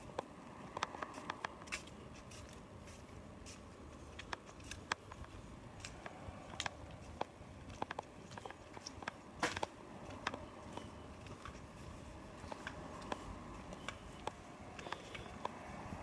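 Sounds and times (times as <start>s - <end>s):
small clicks and taps: 0.1s - 1.9s, 4.2s - 11.6s
footsteps on paving: 0.2s - 16.0s.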